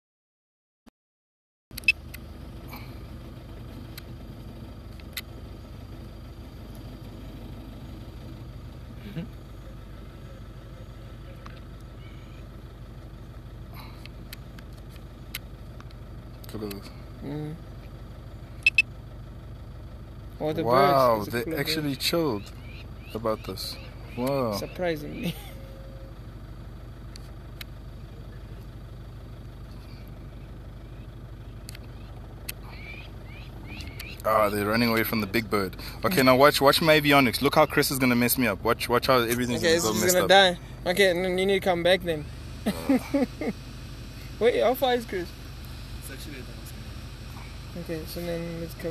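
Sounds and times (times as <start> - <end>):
engine humming steadily: 1.7 - 48.9
sharp click: 33.7 - 34.3.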